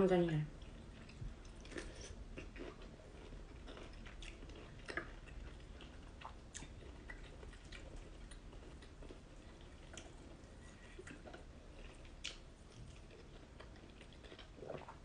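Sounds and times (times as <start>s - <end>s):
chewing and lip smacks: 0.6s - 15.0s.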